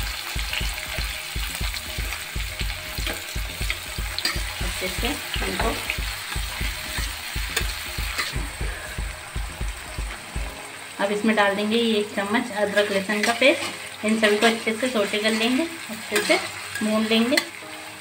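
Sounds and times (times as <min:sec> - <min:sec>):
onions sizzling in hot oil: 0:00.0 - 0:18.0
regular low thudding: 0:00.4 - 0:10.6.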